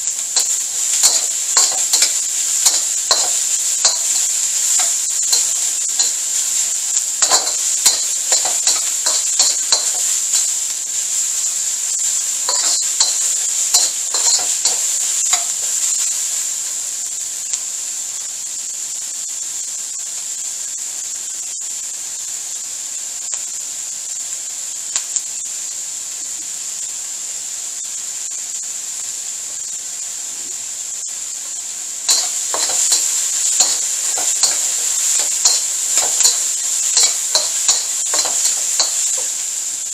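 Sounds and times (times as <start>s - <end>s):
vegetables sizzling in wok: 0.0s - 39.9s
metal spatula scraping wok: 0.4s - 10.7s, 12.4s - 16.1s, 32.1s - 39.6s.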